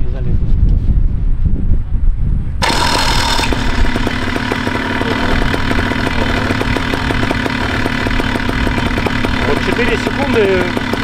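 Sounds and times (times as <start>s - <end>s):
paramotor engine starting and idling: 2.6s - 11.0s.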